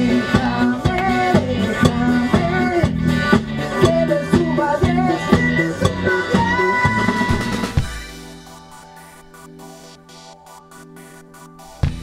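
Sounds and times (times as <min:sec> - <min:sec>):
person singing lead vocal: 0:00.0 - 0:07.9
drum beat: 0:00.0 - 0:12.0
guitar: 0:00.0 - 0:12.0.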